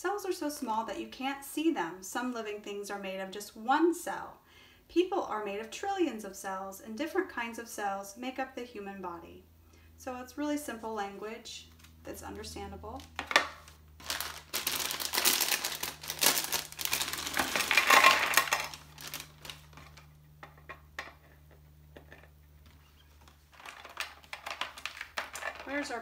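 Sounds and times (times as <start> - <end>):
paper and packaging crinkling: 13.0 - 20.2, 22.6 - 26.0.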